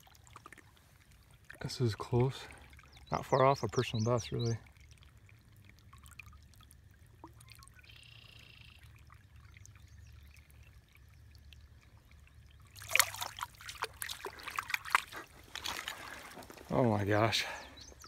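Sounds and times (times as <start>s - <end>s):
stream water trickling: 0.0s - 18.0s
fish splashing: 12.6s - 16.8s.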